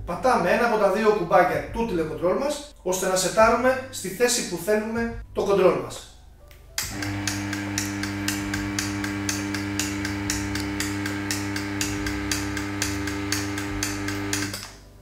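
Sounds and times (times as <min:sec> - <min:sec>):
electric motor hum with ticking: 0:06.8 - 0:14.7.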